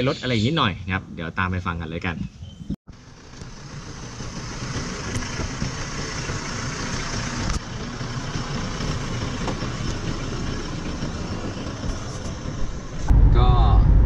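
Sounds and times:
car driving road noise: 2.9s - 14.0s.

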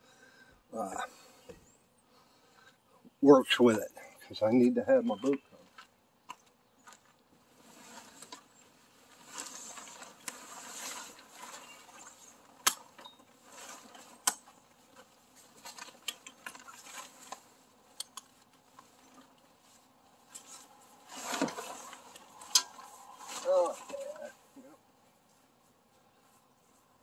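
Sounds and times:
fabric cover rustling: 7.5s - 24.6s.

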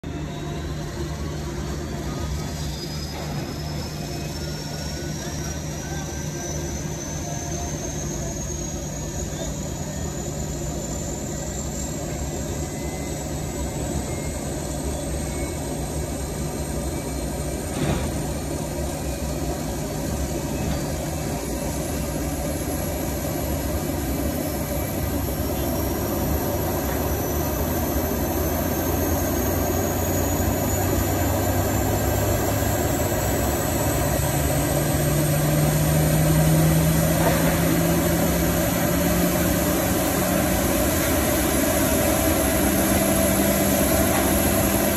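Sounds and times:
auxiliary power unit spooling up: 0.0s - 44.9s.

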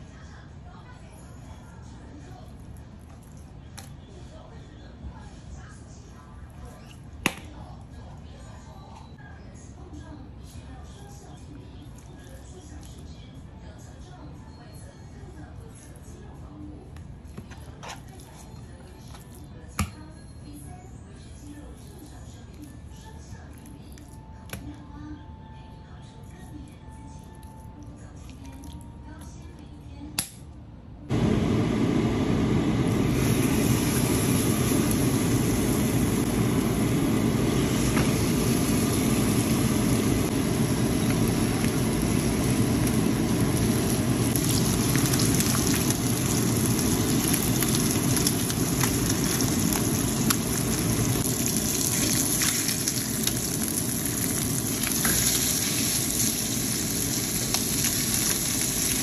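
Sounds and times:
chicken sizzling in a frying pan: 33.0s - 59.0s.

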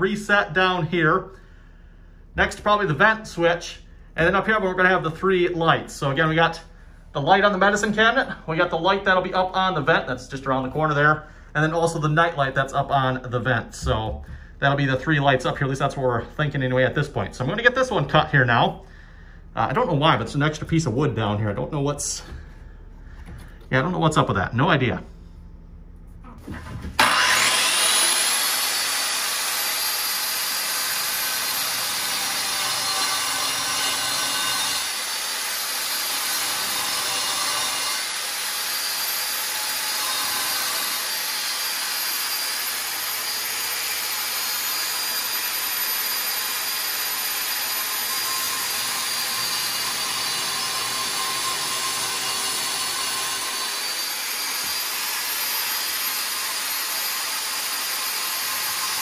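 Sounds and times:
power tool cutting through tiled wall: 27.0s - 59.0s.

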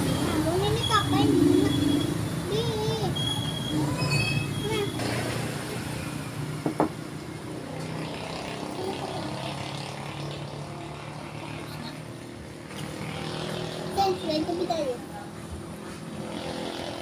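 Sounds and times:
street traffic engine hum: 0.0s - 17.0s.

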